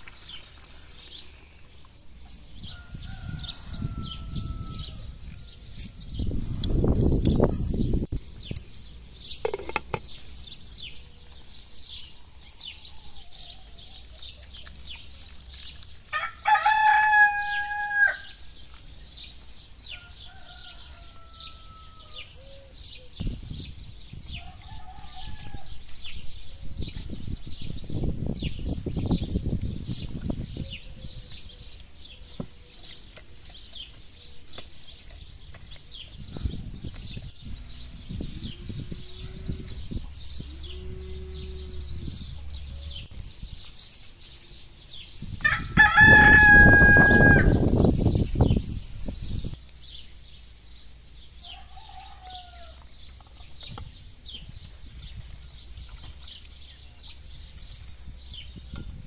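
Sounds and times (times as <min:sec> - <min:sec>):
small birds chirping: 0:00.0 - 0:59.0
distant rooster crows: 0:02.6 - 0:05.6, 0:16.1 - 0:18.4, 0:19.8 - 0:22.6, 0:24.4 - 0:25.8, 0:45.4 - 0:47.7, 0:51.4 - 0:52.8
rooster crowing: 0:02.7 - 0:05.1, 0:16.1 - 0:18.4, 0:20.0 - 0:22.3, 0:45.4 - 0:47.6, 0:51.4 - 0:52.8
low rumbling noise: 0:36.3 - 0:43.6.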